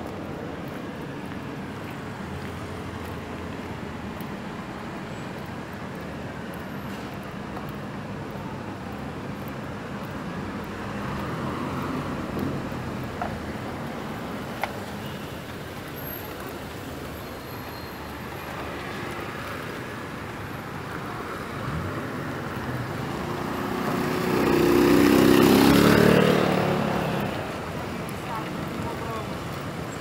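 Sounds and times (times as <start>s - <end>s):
street traffic: 0.0s - 30.0s
vehicle engine passing close: 21.6s - 27.3s.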